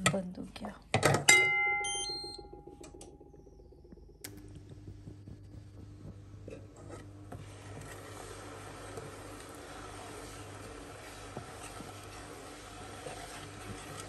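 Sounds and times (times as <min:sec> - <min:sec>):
induction hob humming: 0:00.0 - 0:14.0
steel pot ringing: 0:01.3 - 0:04.2
short high beeps: 0:01.8 - 0:02.6
spatula scraping in pot: 0:06.5 - 0:14.0.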